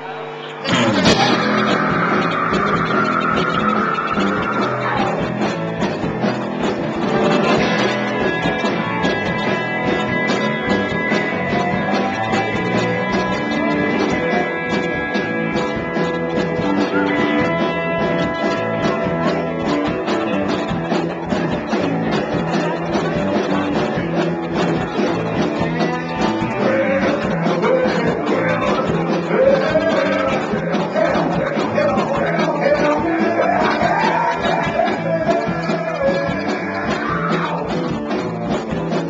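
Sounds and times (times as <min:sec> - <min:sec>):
person singing: 0:00.0 - 0:05.4, 0:25.0 - 0:37.9
live rock band playing: 0:00.4 - 0:39.0.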